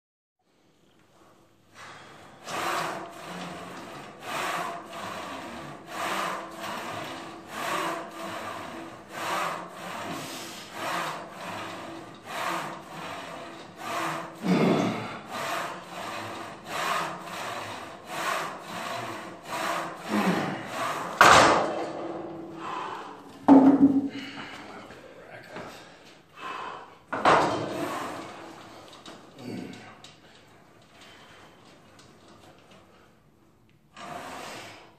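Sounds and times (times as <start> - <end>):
rhythmic rasping strokes: 2.4 - 23.3.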